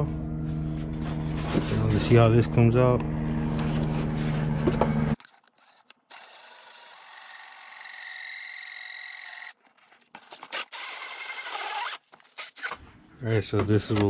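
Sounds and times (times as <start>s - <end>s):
hole saw grinding through plastic: 10.2s - 12.8s.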